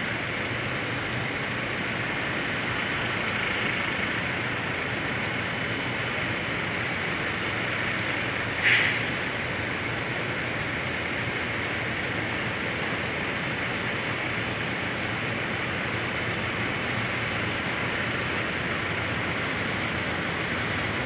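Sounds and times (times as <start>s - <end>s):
air brake hiss: 8.6s - 9.4s.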